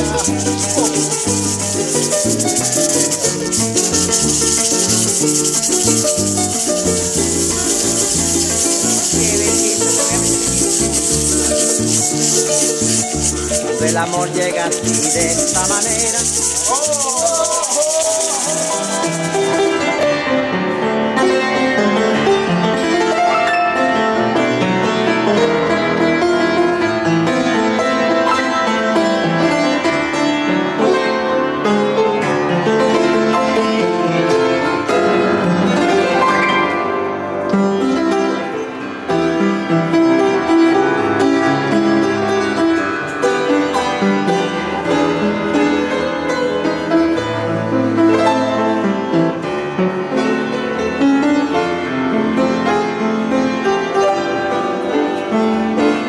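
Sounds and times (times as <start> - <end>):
high hiss: 0.0 - 20.0
piano music: 0.0 - 56.0.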